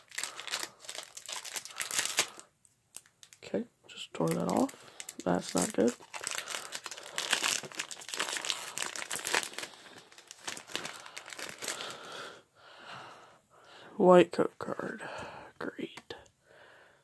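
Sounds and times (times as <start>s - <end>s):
foil wrapper crinkling: 0.0s - 3.4s, 4.2s - 12.2s.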